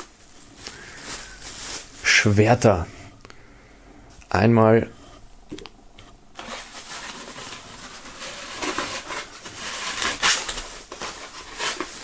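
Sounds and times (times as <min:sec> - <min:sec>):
plastic wrapping film crinkling: 0:00.0 - 0:02.7, 0:06.4 - 0:12.0.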